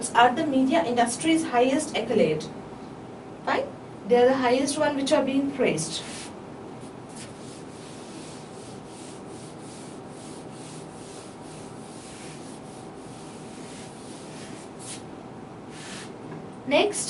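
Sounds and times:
whiteboard eraser wiping: 6.0 - 6.4, 7.1 - 15.1, 15.7 - 16.2.

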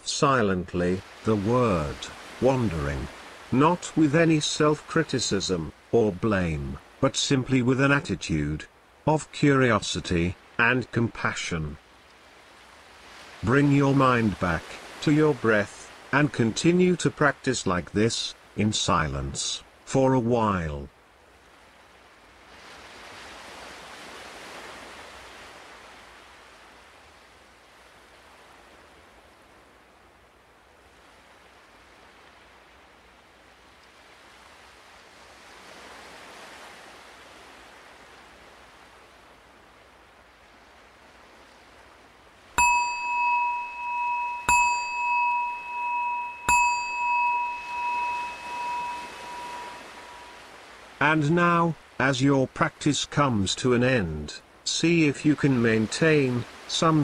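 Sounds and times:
ocean surf washing ashore: 0.0 - 19.9, 21.0 - 53.3, 54.4 - 57.0
meditation bell ringing: 42.6 - 50.4.

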